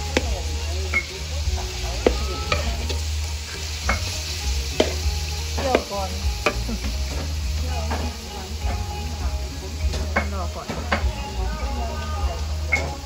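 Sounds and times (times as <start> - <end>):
meat sizzling and frying: 0.0 - 13.0
metal spatula scraping wok: 0.9 - 11.3.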